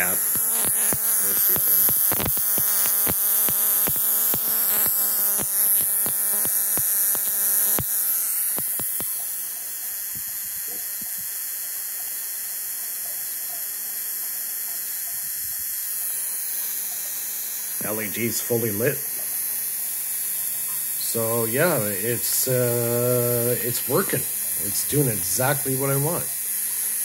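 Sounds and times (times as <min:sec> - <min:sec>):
high hiss: 0:00.0 - 0:09.2, 0:16.1 - 0:19.1, 0:21.0 - 0:27.0
spark gap cracking: 0:00.0 - 0:12.4, 0:13.5 - 0:27.0
electrical buzz: 0:00.0 - 0:27.0.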